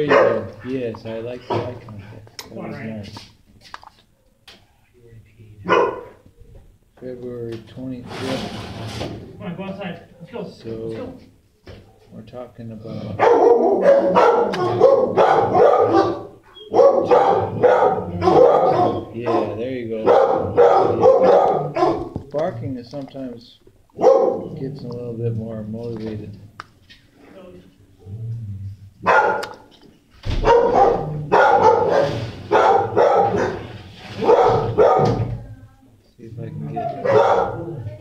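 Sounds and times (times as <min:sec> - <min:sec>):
dog barking loudly: 0:00.0 - 0:00.6, 0:05.7 - 0:06.2, 0:13.2 - 0:22.2, 0:24.0 - 0:24.6, 0:29.0 - 0:29.7, 0:30.4 - 0:35.3, 0:36.9 - 0:37.8.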